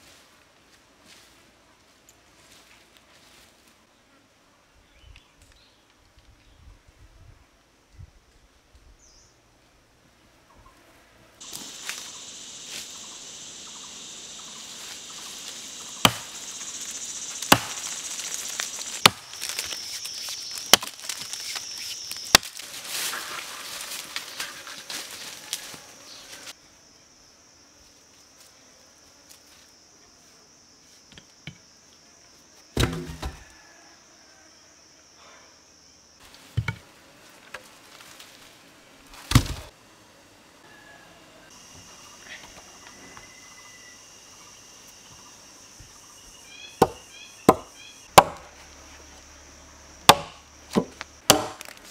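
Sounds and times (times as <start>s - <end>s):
insects droning: 11.4s - 51.9s
axe chopping wood: 16.0s - 16.4s, 17.4s - 19.7s, 20.6s - 21.2s, 32.8s - 33.4s, 39.3s - 39.7s, 46.8s - 48.5s, 50.1s - 51.8s.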